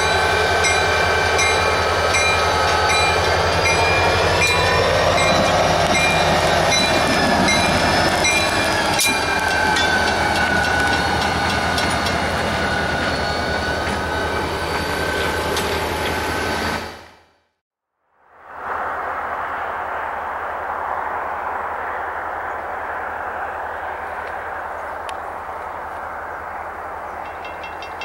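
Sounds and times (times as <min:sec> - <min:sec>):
crossing signal bell dinging: 0:00.0 - 0:15.8, 0:27.2 - 0:28.0
diesel locomotive engine running: 0:00.0 - 0:17.4.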